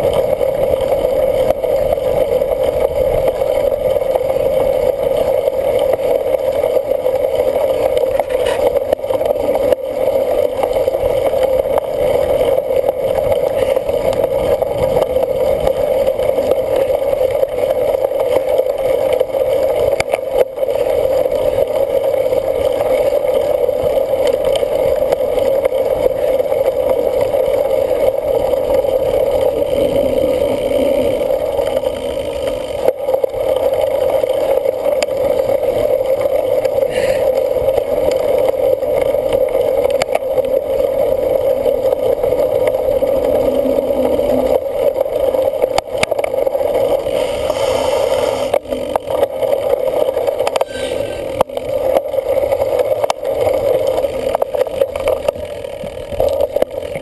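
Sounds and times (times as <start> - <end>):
bike tyres rolling: 0.0 - 57.0
wind on microphone: 42.1 - 48.9.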